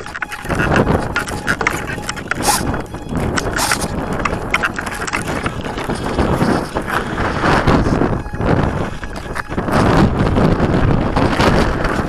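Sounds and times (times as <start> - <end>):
knocks and rattles: 0.0 - 6.6
wind buffeting microphone: 0.0 - 12.0.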